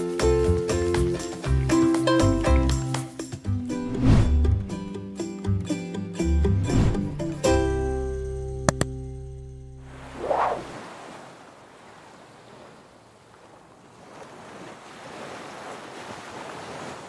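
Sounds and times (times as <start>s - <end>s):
short whoosh: 3.9s - 4.5s, 6.5s - 7.3s, 9.9s - 11.0s
plucked string music chord: 4.4s - 9.8s
ocean surf washing on beach: 9.9s - 17.0s.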